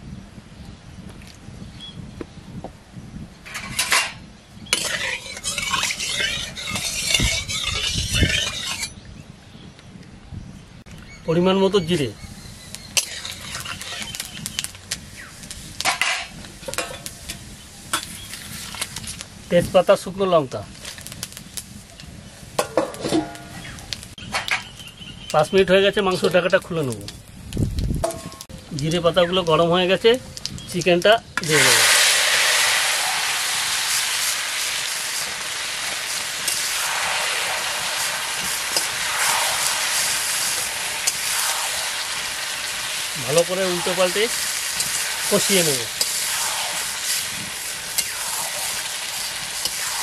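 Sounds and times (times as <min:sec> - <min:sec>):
metal ladle scraping a pan: 0:03.5 - 0:09.0, 0:13.0 - 0:14.3, 0:31.4 - 0:50.0
seeds sizzling in hot oil: 0:04.6 - 0:08.9, 0:12.2 - 0:28.0, 0:28.8 - 0:50.0.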